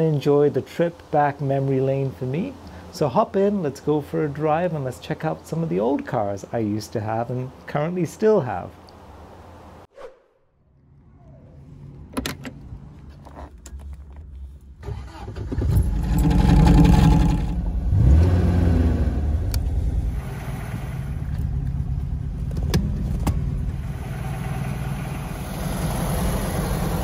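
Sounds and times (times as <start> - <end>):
car door clicks: 12.1 - 12.6
car engine starting and revving: 14.8 - 27.0.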